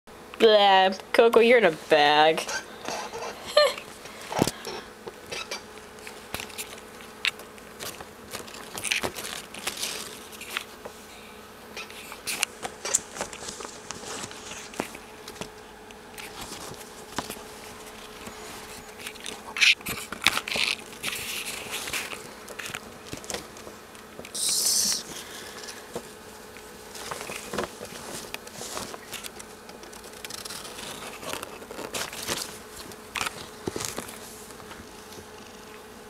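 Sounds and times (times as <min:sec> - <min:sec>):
faint steady hum: 0:00.1 - 0:36.0
bag rustling: 0:12.8 - 0:23.7, 0:25.1 - 0:35.4.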